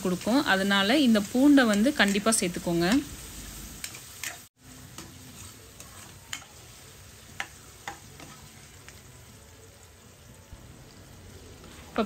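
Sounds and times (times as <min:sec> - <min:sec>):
onions sizzling in oil: 0:00.0 - 0:12.0
metal spoon scraping pan: 0:03.8 - 0:06.6.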